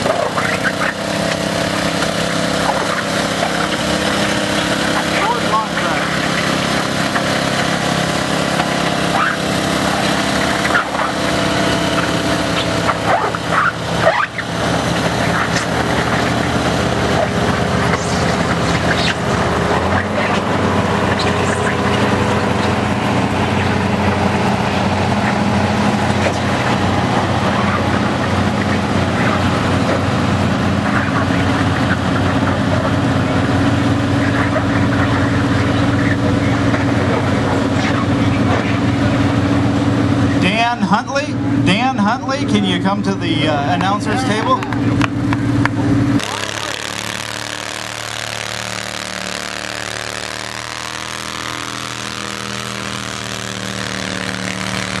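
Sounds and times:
deep farm tractor engine: 0:00.0 - 0:55.0
lawn tractor engine running: 0:00.0 - 0:55.0.

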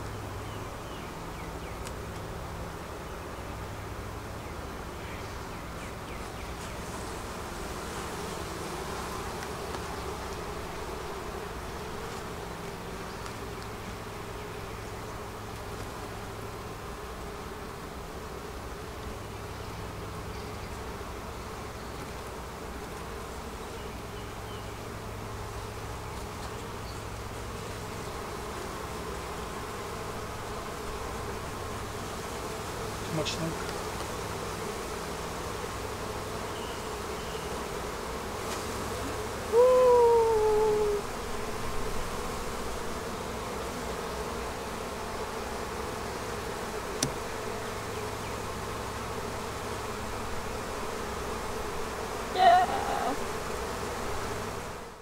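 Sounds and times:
bees buzzing: 0:00.0 - 0:55.0
light knocks: 0:47.0 - 0:47.2.

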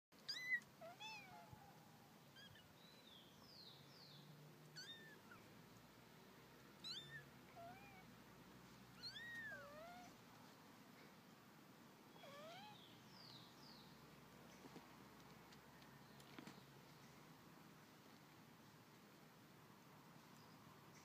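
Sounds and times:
kitten mewing: 0:12.2 - 0:12.8.

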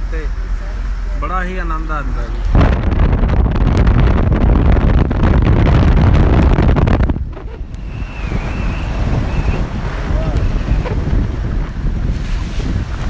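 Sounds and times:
road and engine rumble: 0:00.0 - 0:13.0
wind buffeting microphone: 0:02.3 - 0:13.0
thin wavering whistle: 0:07.8 - 0:09.7.

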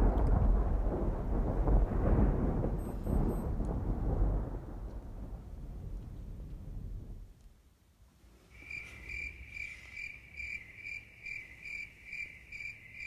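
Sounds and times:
cricket chirping: 0:08.5 - 0:13.0.

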